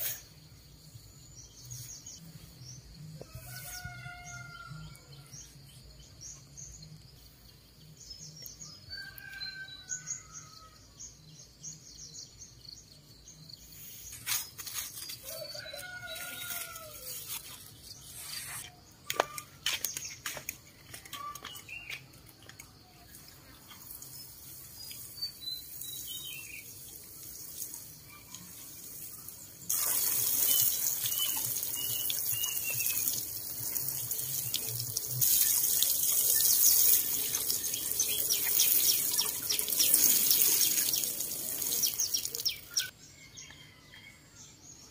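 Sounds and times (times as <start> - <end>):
small birds chirping: 5.5 - 43.7
water pouring from watering can: 23.6 - 42.9.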